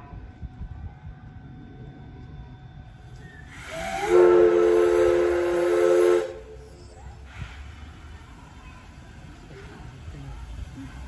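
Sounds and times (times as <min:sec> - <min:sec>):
steam locomotive whistle: 0:03.2 - 0:06.6.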